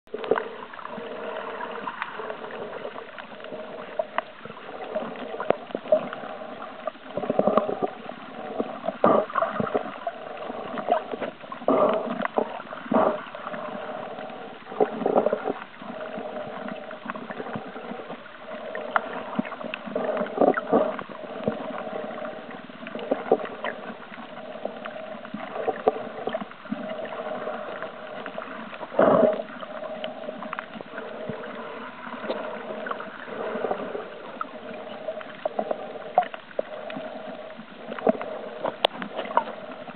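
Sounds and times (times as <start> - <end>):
muffled underwater water murmur: 0.1 - 39.9
water swishes: 0.1 - 39.9.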